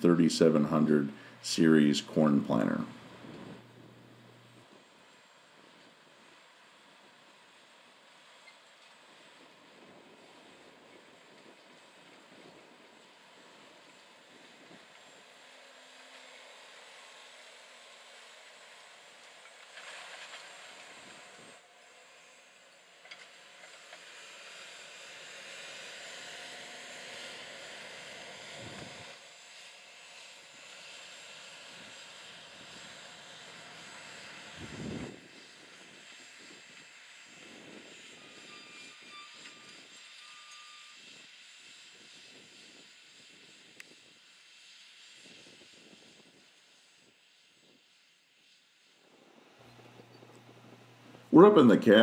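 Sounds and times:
tractor mechanical drone: 0.0 - 52.0
distant tractor engine running: 49.4 - 51.7.

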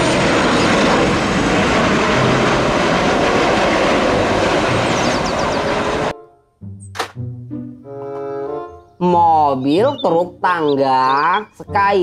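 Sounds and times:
jet engines running: 0.0 - 6.1.

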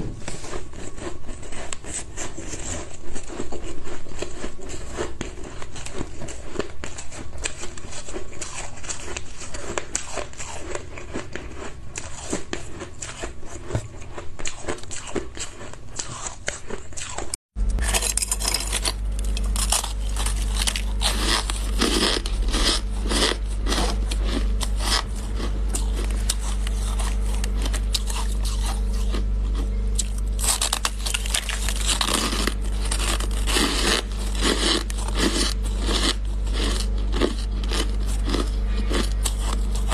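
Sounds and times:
chewing shaved ice: 0.2 - 39.9
steady low hum: 17.5 - 39.9.

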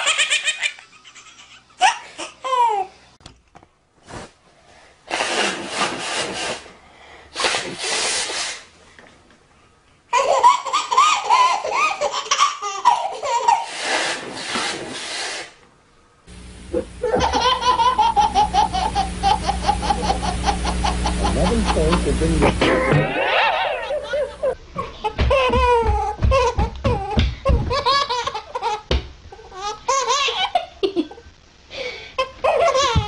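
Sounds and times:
baby laughing: 0.0 - 2.9, 10.1 - 13.8, 16.8 - 31.1, 32.2 - 33.0
steady background hum: 0.0 - 33.0
person blowing nose: 5.0 - 8.7, 13.5 - 15.6.

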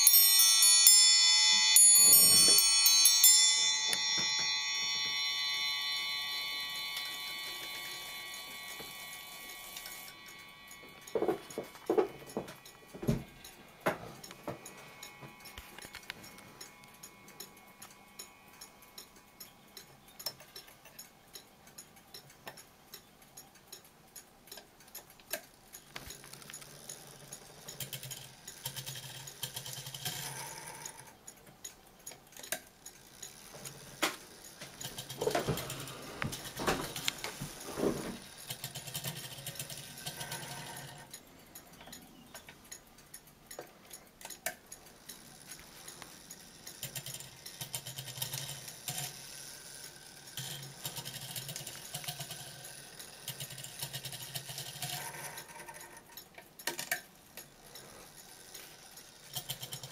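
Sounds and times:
low whirr: 0.0 - 25.1
clock mechanism clicking: 0.0 - 59.9.

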